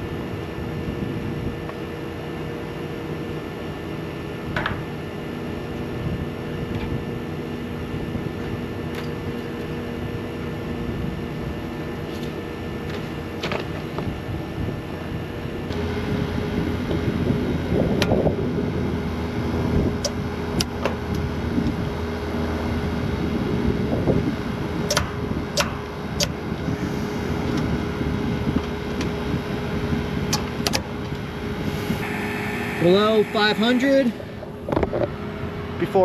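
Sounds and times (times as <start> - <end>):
vacuum pump humming: 30.8 - 35.8.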